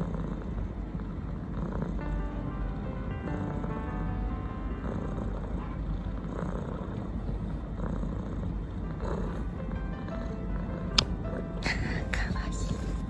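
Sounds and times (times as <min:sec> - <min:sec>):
cat purring: 0:00.0 - 0:13.0.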